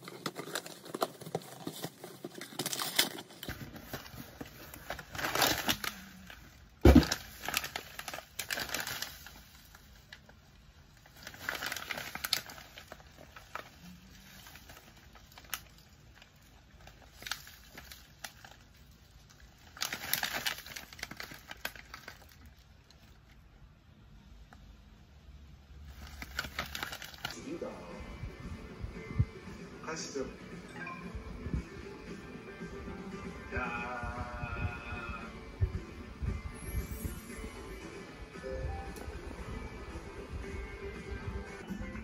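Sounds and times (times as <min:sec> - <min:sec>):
plastic packet crinkling: 0:00.0 - 0:23.4, 0:25.9 - 0:27.4.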